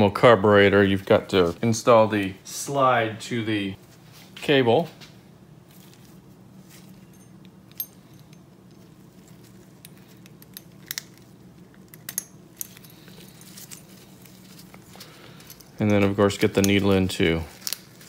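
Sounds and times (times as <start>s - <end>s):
steady low hum: 0.0s - 18.0s
light metallic clicks and clinks: 6.8s - 18.0s.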